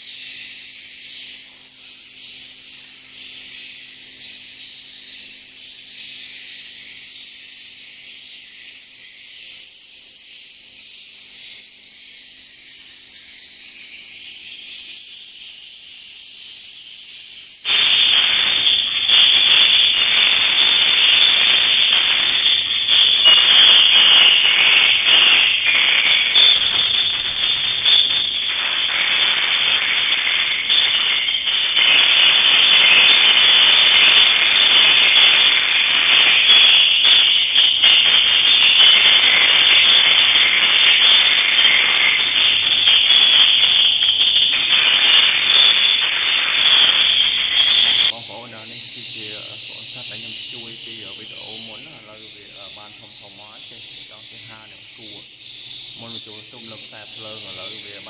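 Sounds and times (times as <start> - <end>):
swiftlets twittering: 0.0 - 58.0
dense hissing noise: 47.5 - 58.0.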